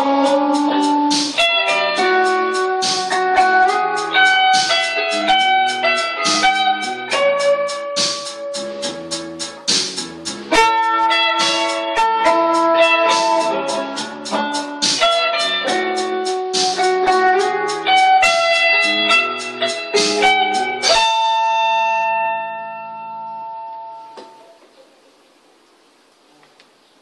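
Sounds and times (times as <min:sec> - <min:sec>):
regular drum beat: 0:00.0 - 0:21.0
instrumental melody: 0:00.0 - 0:24.7
ringing held chord: 0:20.5 - 0:24.5.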